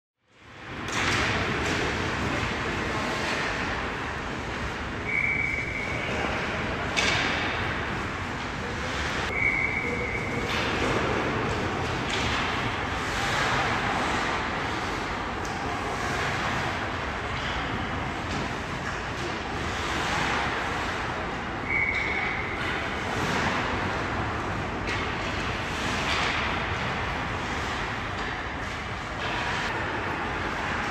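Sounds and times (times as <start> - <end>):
skates scraping ice: 0.8 - 30.9
skates scraping on ice: 1.3 - 4.8, 8.8 - 17.0, 18.2 - 21.3.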